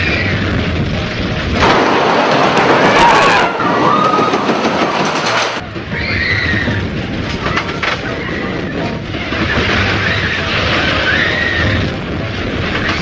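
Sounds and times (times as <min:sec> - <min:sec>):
roller coaster rumbling on track: 0:00.0 - 0:13.0
riders screaming: 0:01.7 - 0:07.0, 0:08.0 - 0:12.0.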